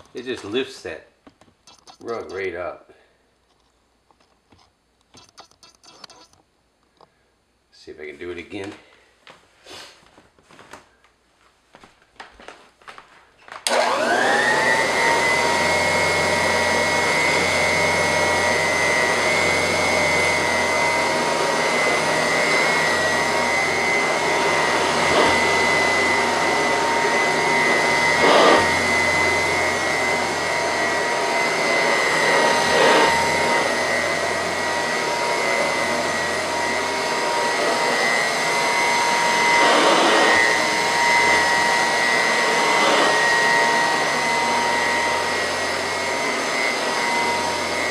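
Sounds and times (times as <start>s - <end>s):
vacuum cleaner motor whining: 13.6s - 47.9s.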